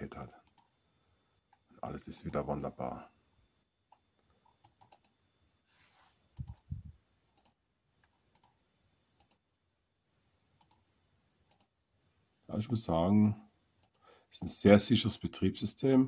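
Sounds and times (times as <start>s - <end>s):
computer mouse clicking: 0.4s - 0.7s, 3.9s - 5.2s, 6.4s - 6.7s, 7.3s - 8.6s, 9.2s - 9.4s, 10.6s - 10.8s, 11.5s - 11.7s, 13.8s - 14.0s.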